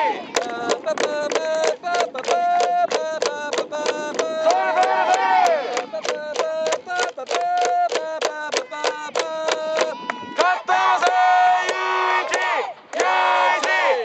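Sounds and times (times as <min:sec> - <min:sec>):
children chanting and cheering: 0:00.0 - 0:00.5, 0:04.4 - 0:06.1, 0:08.5 - 0:14.0.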